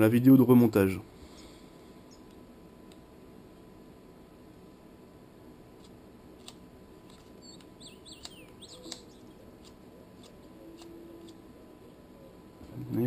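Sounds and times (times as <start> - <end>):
faint high chirps: 1.3 - 2.4, 7.1 - 9.4
tweezers clicking on screws: 5.8 - 11.4.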